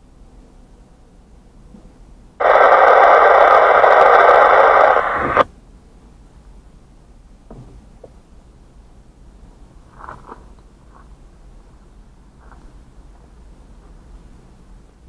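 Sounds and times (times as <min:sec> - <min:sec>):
radio squelch tail: 0:02.4 - 0:05.5
radio static hiss: 0:02.4 - 0:05.5.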